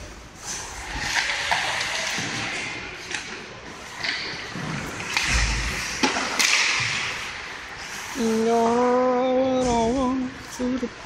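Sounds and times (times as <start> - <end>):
hockey sticks and puck clacking: 0.0 - 7.7.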